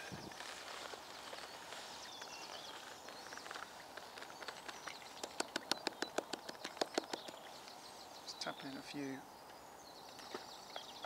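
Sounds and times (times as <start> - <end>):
birds chirping: 0.0 - 11.0
small sharp clicks: 4.4 - 7.4.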